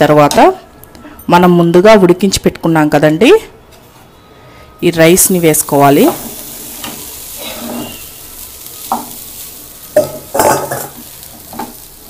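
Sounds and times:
faint sizzle: 4.3s - 12.0s
rice stirred in pan: 5.2s - 12.0s.

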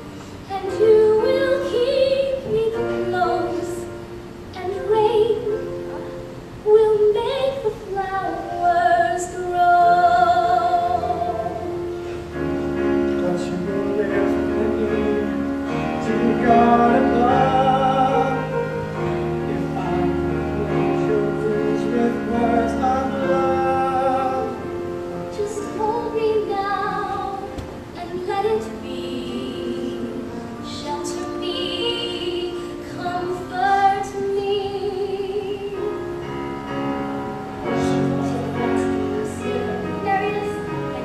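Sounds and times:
sustained musical accompaniment: 0.0s - 41.0s
woman singing with vibrato: 0.4s - 6.0s, 6.6s - 11.9s, 25.2s - 36.3s, 37.6s - 41.0s
man singing: 13.1s - 24.6s.

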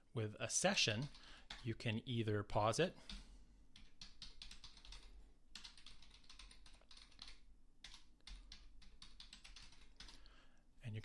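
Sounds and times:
faint keyboard typing: 1.0s - 2.0s, 2.9s - 10.4s.

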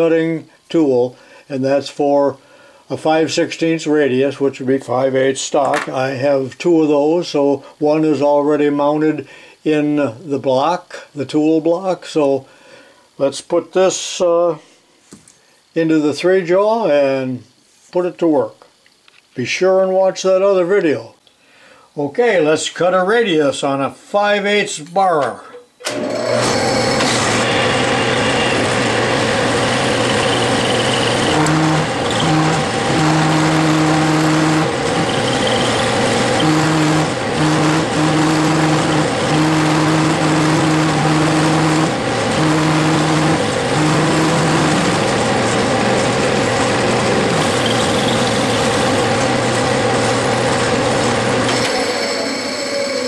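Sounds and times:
tool chatter hum: 25.8s - 53.0s
metal lathe cutting: 25.9s - 53.0s.

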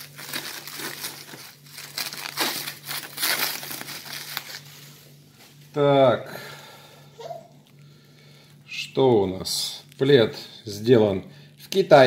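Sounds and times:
plastic wrap crinkling: 0.0s - 5.6s.

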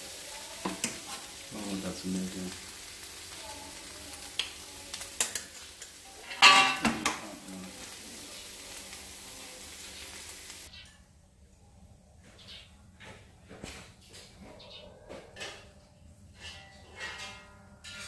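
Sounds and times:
meat sizzling in a wok: 0.0s - 10.7s
utensil clattering against wok: 5.1s - 7.3s.

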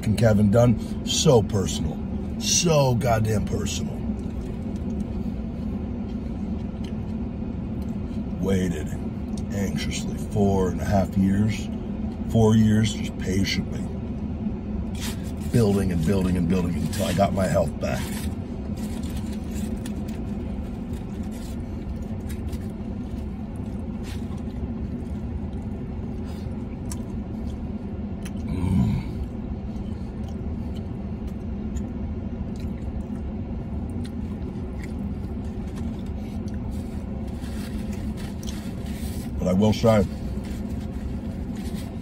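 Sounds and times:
vehicle cab hum: 0.0s - 42.0s
food wrapper rustling: 15.0s - 25.6s, 34.3s - 42.0s
man exhaling: 28.4s - 29.4s.

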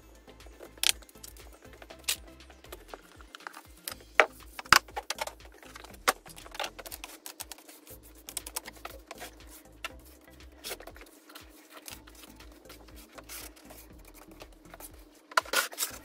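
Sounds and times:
soft background music: 0.0s - 16.0s.

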